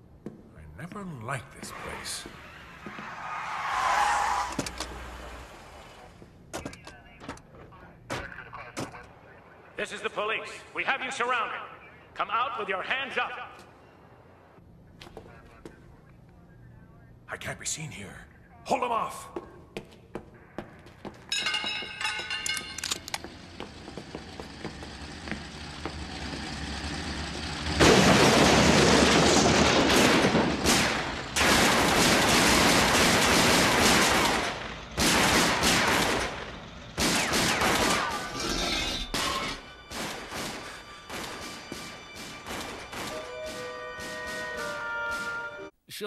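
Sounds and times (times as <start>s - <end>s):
cartoon gunfire: 37.0s - 38.4s
orchestral score: 43.0s - 45.7s.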